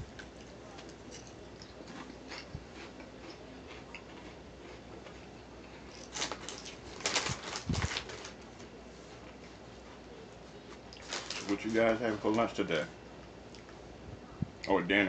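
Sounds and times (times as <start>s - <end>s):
chewing potato chips: 0.0s - 12.2s
paper wrapper crinkling: 6.0s - 8.7s, 11.0s - 12.6s.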